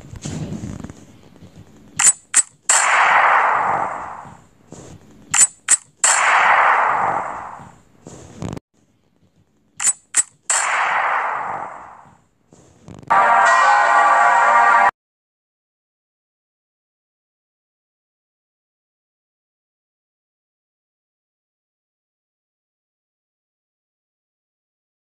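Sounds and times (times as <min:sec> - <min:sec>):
sharp clicks: 0:02.0 - 0:04.4, 0:05.3 - 0:07.7, 0:09.8 - 0:12.1.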